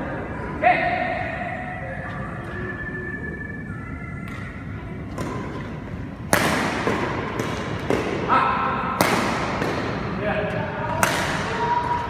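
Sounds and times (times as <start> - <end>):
rackets hitting shuttlecock: 4.2 - 8.3, 8.9 - 10.2, 10.8 - 12.0.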